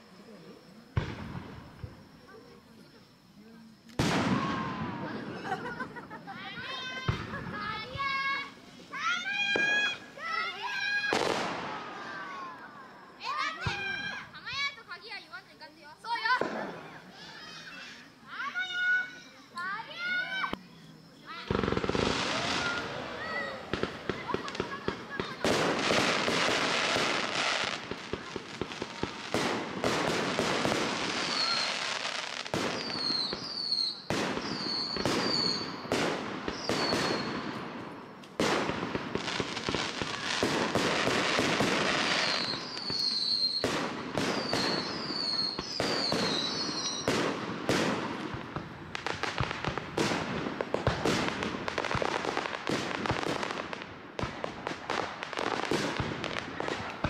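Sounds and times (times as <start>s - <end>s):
high falling whistles: 0.0s - 15.3s, 15.9s - 25.4s, 31.0s - 35.9s, 36.5s - 37.4s, 42.0s - 47.2s
fireworks bangs and crackling: 0.0s - 57.0s.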